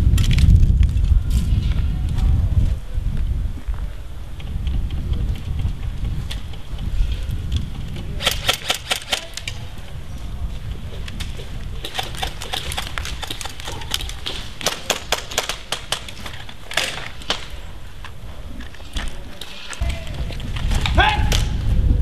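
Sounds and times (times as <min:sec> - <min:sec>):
airsoft guns firing bursts: 0:08.2 - 0:09.4.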